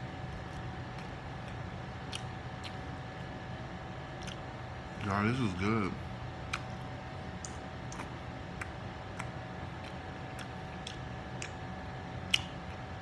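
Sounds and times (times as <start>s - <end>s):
low steady hum: 0.0s - 13.0s
chewing food: 0.2s - 3.4s, 4.1s - 5.3s, 6.4s - 13.0s
wet mouth clicks: 1.0s - 2.8s, 4.2s - 5.1s, 6.4s - 6.8s, 7.4s - 12.8s.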